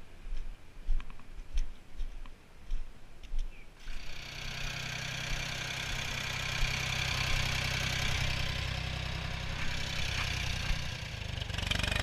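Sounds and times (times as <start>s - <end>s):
footsteps on icy snow: 0.0s - 3.6s, 5.3s - 11.1s.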